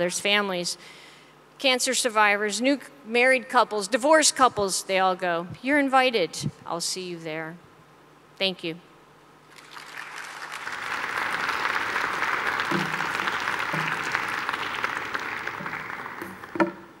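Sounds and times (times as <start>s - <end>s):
audience applauding: 9.5s - 17.0s.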